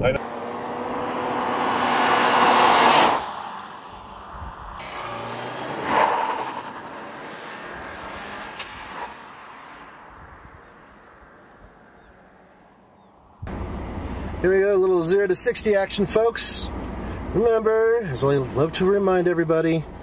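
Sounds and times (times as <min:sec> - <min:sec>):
car driving past at speed: 0:00.2 - 0:13.2.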